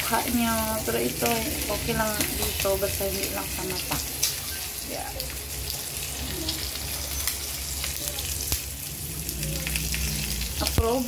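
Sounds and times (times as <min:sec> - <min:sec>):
food sizzling in oil: 0:00.0 - 0:11.0
oil popping and crackling: 0:00.0 - 0:11.0.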